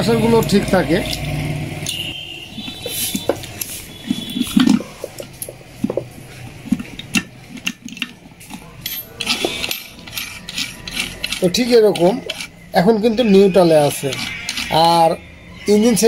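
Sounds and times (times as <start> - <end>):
metal gears clinking and knocking: 6.6 - 12.6.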